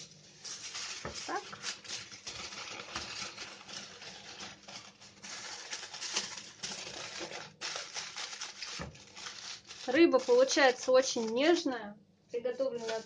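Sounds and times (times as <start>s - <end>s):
aluminium foil crinkling: 0.0s - 11.8s, 12.4s - 13.0s.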